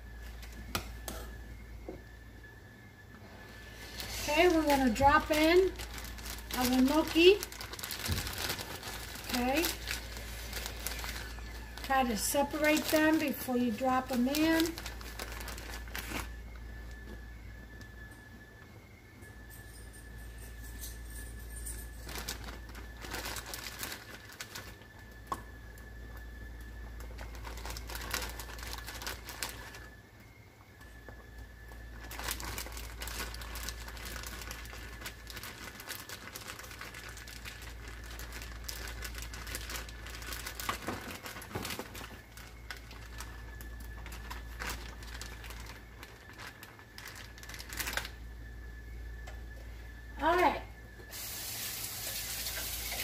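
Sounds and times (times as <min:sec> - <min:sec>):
plastic bag crinkling: 0:03.6 - 0:17.0, 0:21.1 - 0:24.9, 0:26.9 - 0:30.0, 0:31.8 - 0:48.3.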